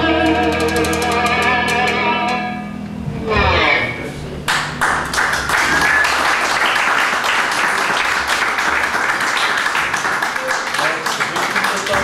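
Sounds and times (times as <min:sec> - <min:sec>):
music: 0:00.0 - 0:06.8
audience applauding: 0:04.5 - 0:12.0.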